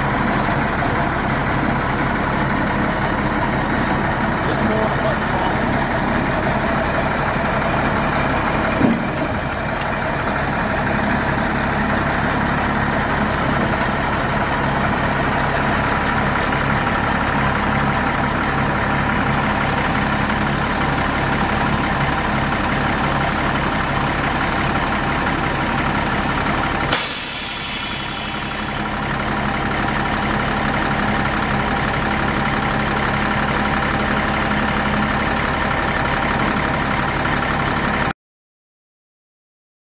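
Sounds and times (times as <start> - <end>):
diesel truck engine running: 0.0 - 38.1
loud hiss: 26.9 - 28.8.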